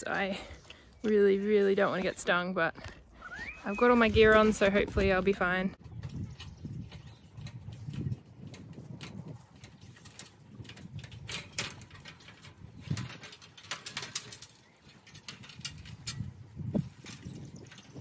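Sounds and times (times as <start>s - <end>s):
aluminium ladder knocking: 5.9s - 18.0s.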